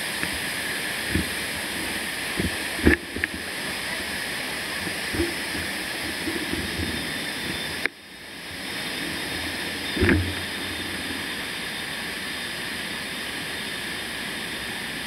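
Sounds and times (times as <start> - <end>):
steady hiss: 0.0 - 14.9.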